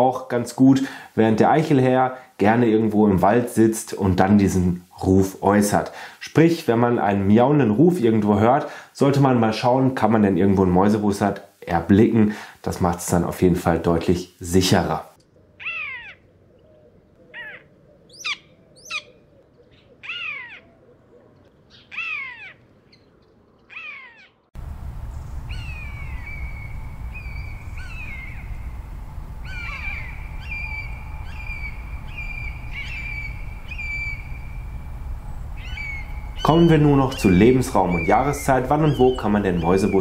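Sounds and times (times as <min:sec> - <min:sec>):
high drawn-out bird calls: 0:15.3 - 0:40.0
buzzard mewing calls: 0:15.4 - 0:23.0, 0:23.7 - 0:24.5, 0:25.4 - 0:40.0
steady low rumble: 0:24.6 - 0:40.0.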